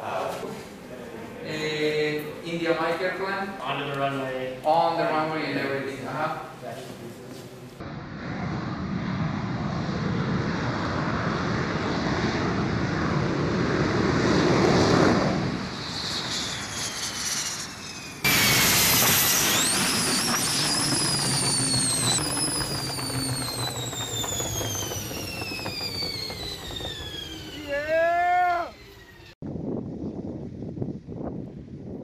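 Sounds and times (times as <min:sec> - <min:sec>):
jet engine running: 0:07.8 - 0:29.4
high whining tones gliding down: 0:15.2 - 0:29.4.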